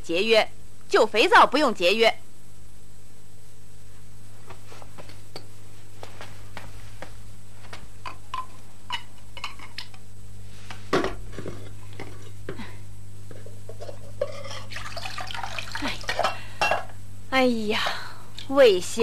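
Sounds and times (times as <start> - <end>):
steady low hum: 0.0 - 19.0
dishes and utensils clinking: 8.1 - 9.9, 13.4 - 15.0, 16.1 - 16.9
dishes clattering: 8.1 - 9.9, 13.3 - 15.2, 16.0 - 16.9
tap water running into sink: 14.7 - 15.8.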